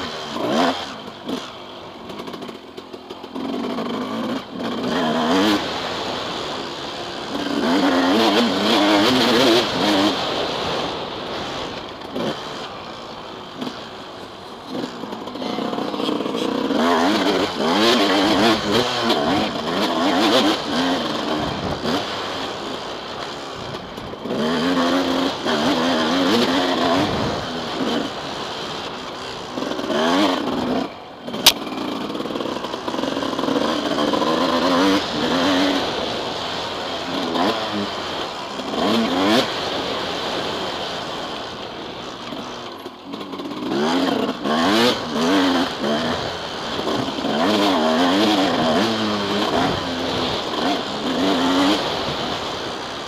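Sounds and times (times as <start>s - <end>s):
two-stroke engine revving: 0.0s - 53.0s
sharp click: 31.4s - 31.6s.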